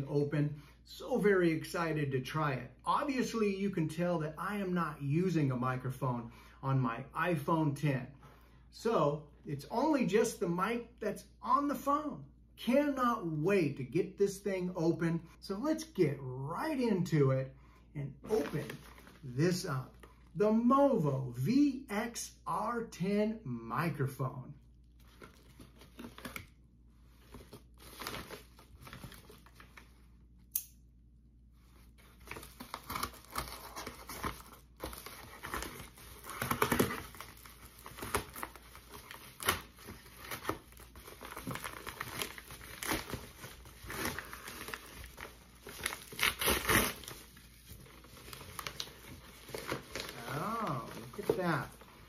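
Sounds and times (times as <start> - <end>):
paper mailer crinkling and ripping: 18.3 - 20.4, 24.9 - 30.1, 31.8 - 52.0.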